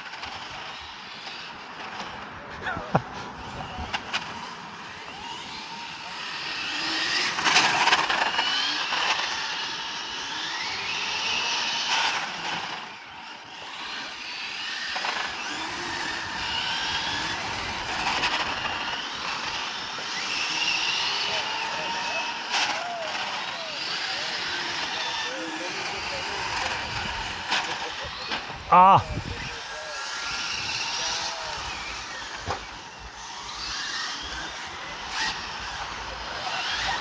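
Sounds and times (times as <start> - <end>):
rc car motor whine: 0.0 - 2.4, 3.2 - 37.0.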